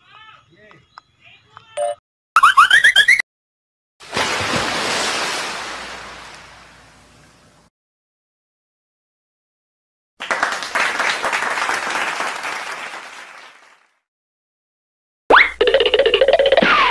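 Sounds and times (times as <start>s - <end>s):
clapping: 10.2s - 14.0s.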